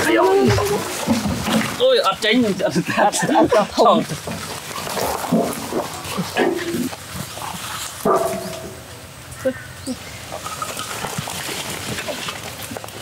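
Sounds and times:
dog barking: 8.0 - 8.5.

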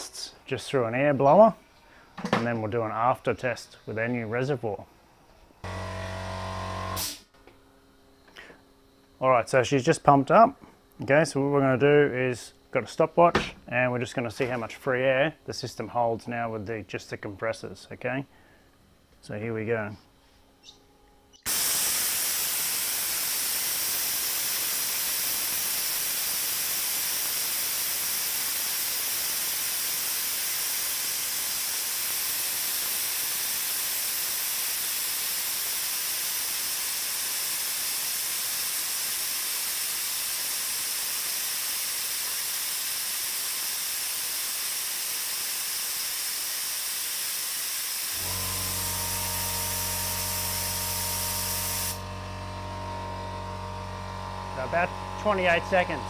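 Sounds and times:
compressed air hissing: 21.5 - 56.0
steady low hum: 48.1 - 56.0.

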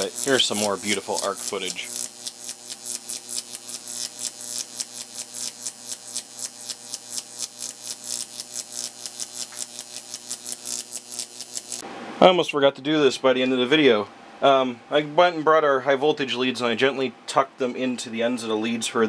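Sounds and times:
electrical arc humming and crackling: 0.0 - 12.2.

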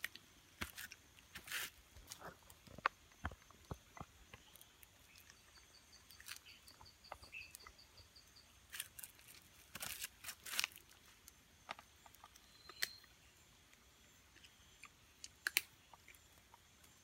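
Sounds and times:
insect ticking call: 0.0 - 17.0
soft crackles and rustles: 8.7 - 12.5.

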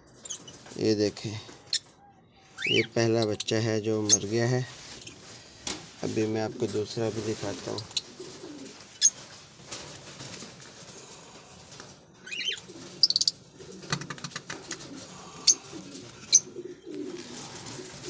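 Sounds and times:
birds cooing: 7.6 - 9.3, 10.8 - 18.0.

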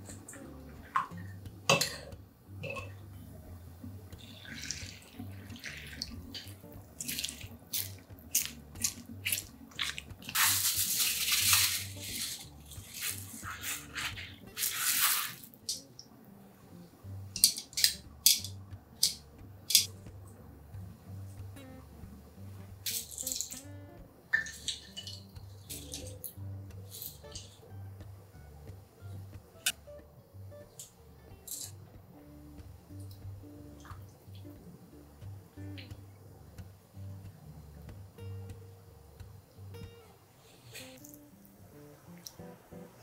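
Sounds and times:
plastic wrapping rustling: 7.0 - 15.6.

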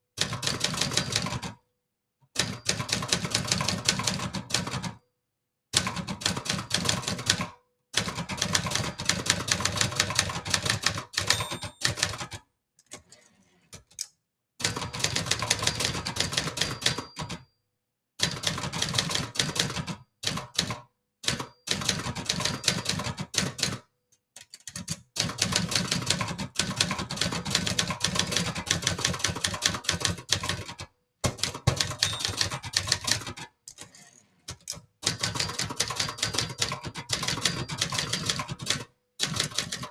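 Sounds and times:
typewriter keys clacking: 8.2 - 13.2, 13.8 - 17.4, 24.4 - 39.9
typewriter carriage return: 8.3 - 14.0, 24.4 - 39.9.

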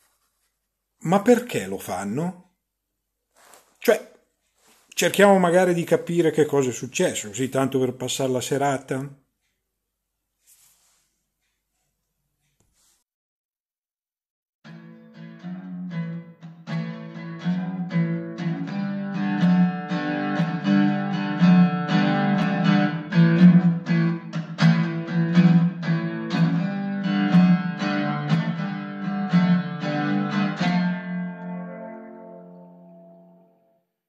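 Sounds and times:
guitar picking: 14.7 - 33.7
guitar chord ringing: 14.7 - 33.9.

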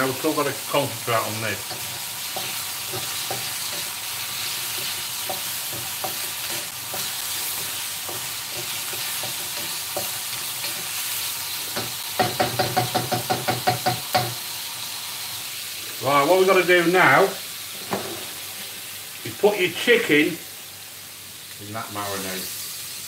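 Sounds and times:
meat sizzling in oil: 0.0 - 23.0
wooden spatula scraping a wok: 1.6 - 12.0, 17.7 - 18.7
spatula knocking against wok: 1.7 - 4.0, 4.8 - 10.8, 11.7 - 14.4.

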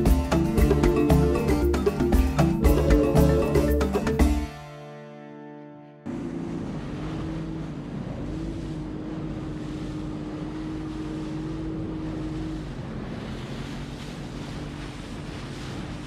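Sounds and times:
water rushing along hull: 0.0 - 4.6, 6.0 - 16.0
music track: 0.0 - 6.2
boat motor running: 0.0 - 16.0
wind on microphone: 6.1 - 16.0.

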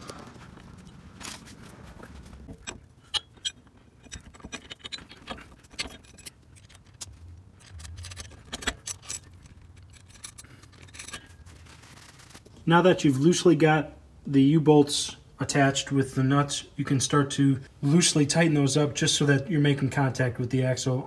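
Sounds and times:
metal hardware clinking: 2.4 - 11.6.

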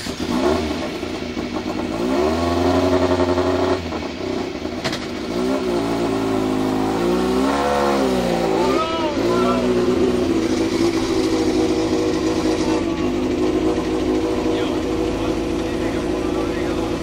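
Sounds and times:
race engine revving: 0.0 - 17.0.

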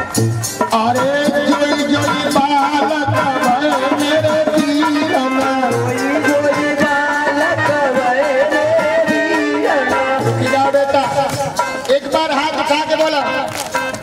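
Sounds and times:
devotional folk melody: 0.0 - 14.0
hand-drum beats: 0.0 - 14.0
audience clapping: 12.9 - 14.0.

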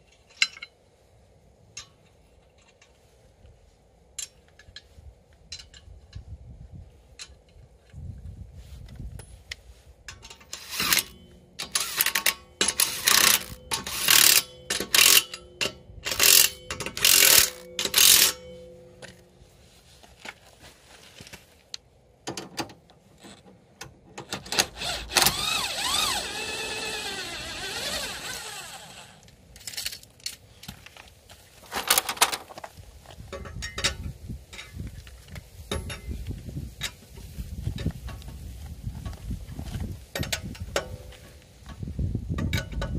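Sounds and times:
metal wrench clicks: 10.1 - 19.2
power tool running: 10.5 - 15.2, 24.6 - 29.2
impact tool bursts: 10.5 - 19.1, 24.3 - 29.2.

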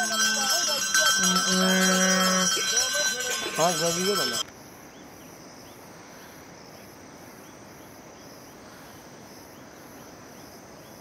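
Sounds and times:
high pulsing trill: 0.0 - 4.4
crickets and insects chorus: 0.0 - 11.0.

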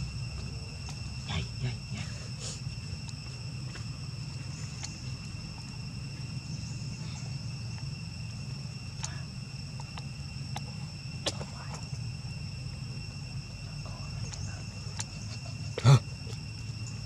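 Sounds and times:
insect chorus: 0.0 - 17.0
low steady rumble: 0.0 - 17.0
faint clicks: 9.0 - 10.7.

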